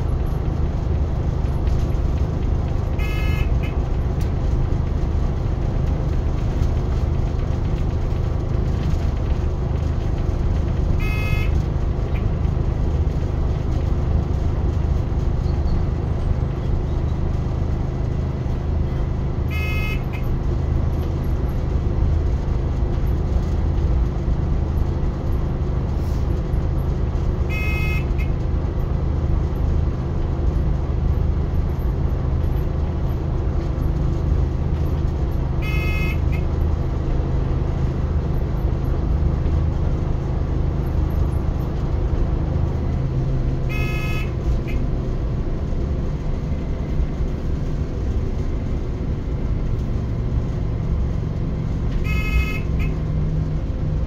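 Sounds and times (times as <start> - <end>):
railcar engine drone: 0.0 - 54.0
short electronic beep: 52.1 - 52.7.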